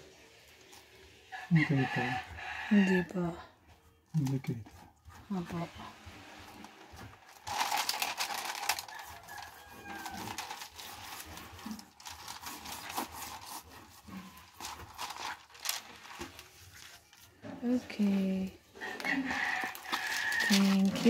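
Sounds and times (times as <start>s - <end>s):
plastic film crinkling: 6.2s - 17.4s, 18.8s - 21.0s.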